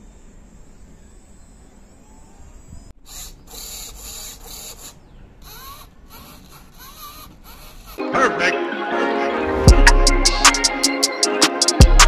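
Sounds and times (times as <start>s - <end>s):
small electric motors whirring: 3.0s - 8.0s.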